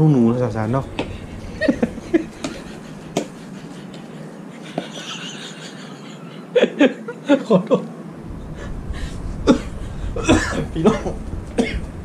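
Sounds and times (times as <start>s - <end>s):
woman laughing: 1.4s - 4.0s, 4.6s - 7.8s.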